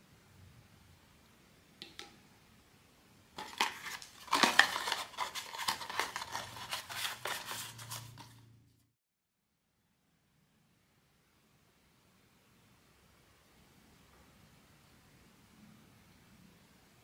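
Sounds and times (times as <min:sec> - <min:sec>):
packaging clicks: 0:03.4 - 0:07.8
packaging crackling and rustling: 0:03.4 - 0:08.4.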